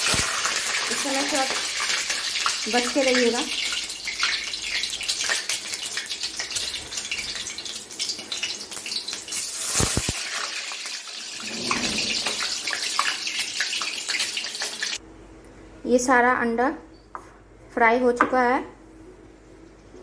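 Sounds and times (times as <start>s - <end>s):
eggs sizzling in hot oil: 0.0s - 15.0s.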